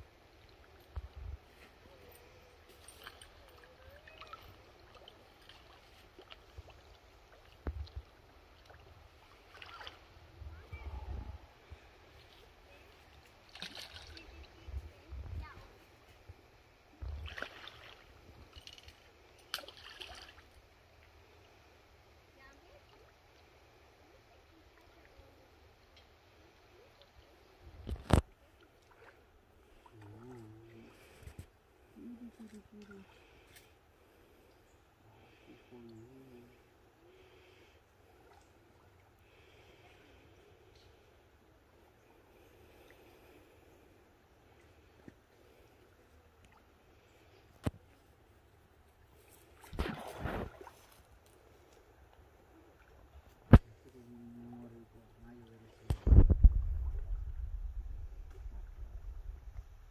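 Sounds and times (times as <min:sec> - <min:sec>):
shallow river water rushing: 0:00.0 - 0:14.6, 0:16.6 - 0:27.6
flowing shallow river water: 0:00.0 - 0:59.9
person humming: 0:30.0 - 0:31.0, 0:31.9 - 0:33.2, 0:35.7 - 0:36.6.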